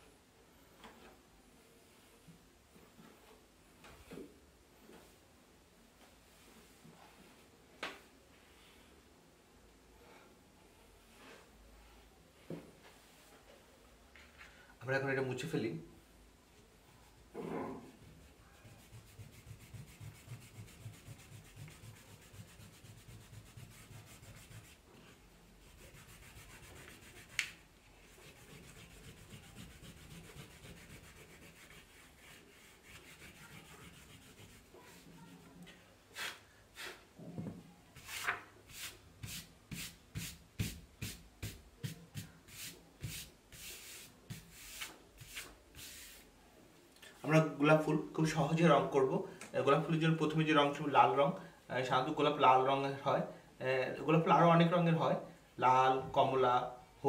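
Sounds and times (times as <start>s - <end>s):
eraser scrubbing paper: 18.6s - 35.4s
hand sweeping paper: 18.6s - 37.1s, 38.0s - 46.3s.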